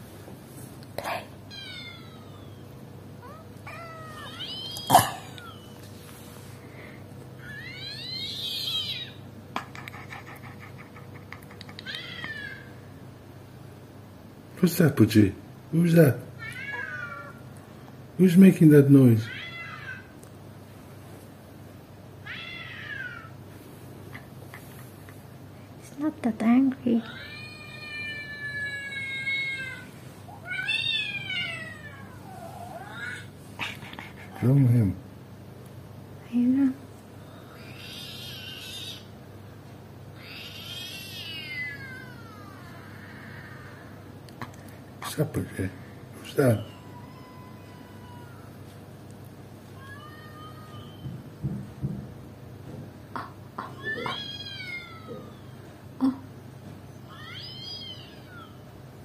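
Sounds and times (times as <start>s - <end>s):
cat meowing: 1.5s - 2.6s, 3.2s - 5.7s, 16.4s - 17.4s, 19.2s - 20.1s, 22.2s - 23.3s, 27.0s - 33.3s, 40.2s - 43.9s, 46.5s - 48.6s, 49.8s - 51.2s, 53.6s - 55.7s, 57.1s - 58.6s.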